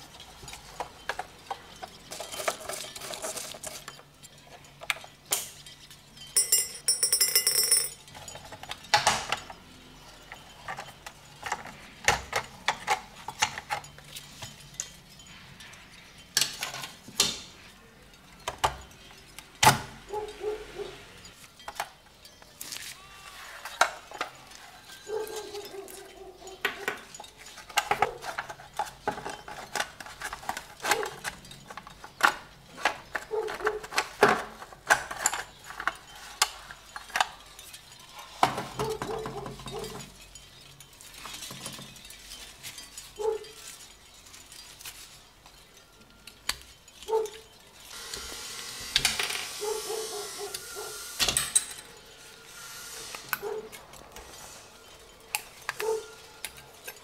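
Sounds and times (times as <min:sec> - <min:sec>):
toy parts clicking and clinking: 0:00.0 - 0:57.0
metal tool scraping: 0:47.9 - 0:57.0.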